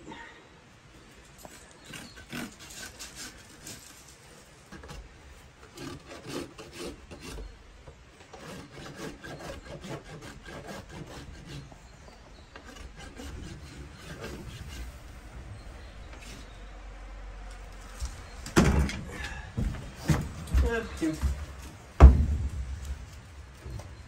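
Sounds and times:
hoof rasp filing a hoof: 1.4 - 7.6, 8.3 - 16.7.

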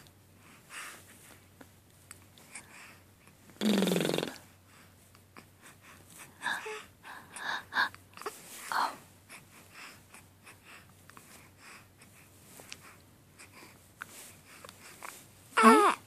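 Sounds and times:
breathy snuffles: 3.6 - 4.4.

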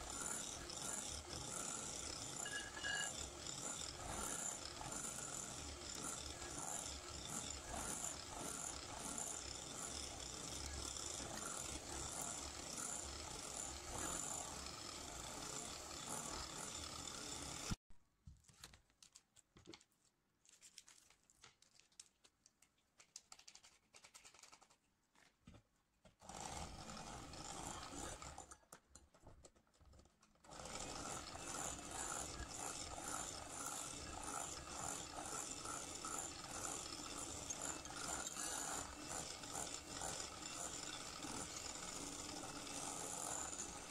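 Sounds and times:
electric hand mixer running: 0.0 - 17.8, 26.2 - 28.4, 30.5 - 43.9
faint clinks and scrapes: 2.4 - 3.2.

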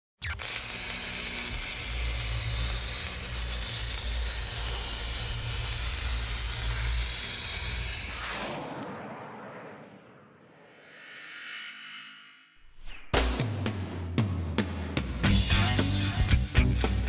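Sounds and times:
plasma cutting arc hissing: 0.2 - 8.4
low rumble: 8.2 - 10.9.

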